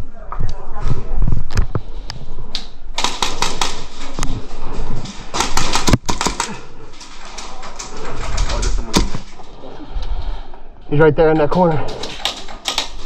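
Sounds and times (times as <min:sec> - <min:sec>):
airsoft gunfire: 0:03.0 - 0:04.2, 0:05.3 - 0:07.9.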